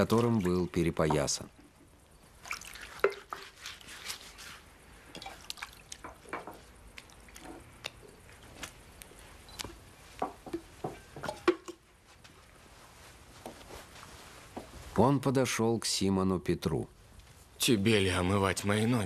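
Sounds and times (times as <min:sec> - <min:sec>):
water dripping and splashing: 0:00.0 - 0:08.8.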